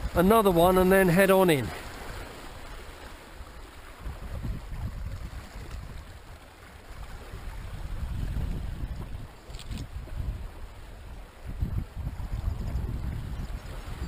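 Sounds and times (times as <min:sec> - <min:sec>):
wind rumble on microphone: 0:00.0 - 0:00.9, 0:02.0 - 0:14.0
sea water lapping against rocks: 0:00.0 - 0:14.0.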